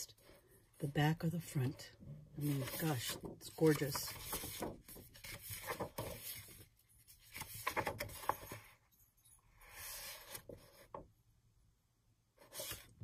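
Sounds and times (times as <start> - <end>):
paper rustling: 2.4 - 8.8, 12.4 - 13.0.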